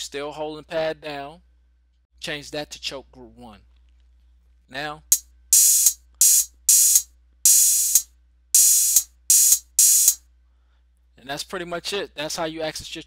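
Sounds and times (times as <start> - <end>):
open and closed hi-hat hits: 5.1 - 10.2.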